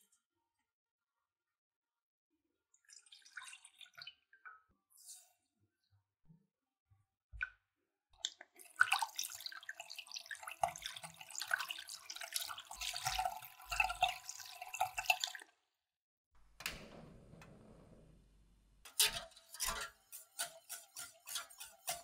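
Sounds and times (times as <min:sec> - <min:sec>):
hand blender mixing liquid: 0:19.8 - 0:22.0.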